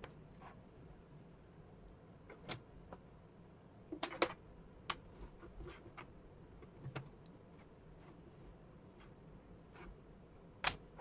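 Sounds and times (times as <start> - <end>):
wooden puzzle pieces clicking: 3.9 - 5.0.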